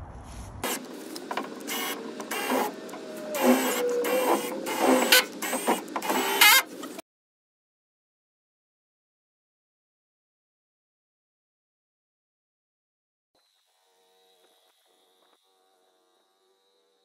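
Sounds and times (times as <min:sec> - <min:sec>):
cordless drill whirring: 0:00.6 - 0:07.0.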